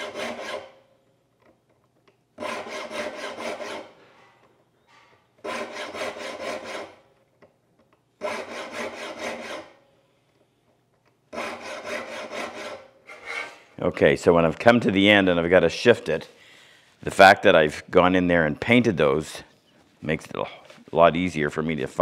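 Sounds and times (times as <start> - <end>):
file rasping on saw teeth: 0.0 - 0.8, 2.4 - 4.0, 5.4 - 7.0, 8.2 - 9.8, 11.3 - 13.6.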